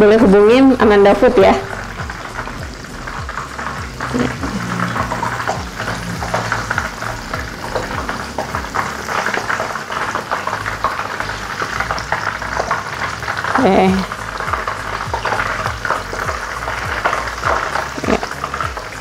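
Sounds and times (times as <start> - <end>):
prawns sizzling in a pan: 0.0 - 19.0
low hum: 0.8 - 9.8.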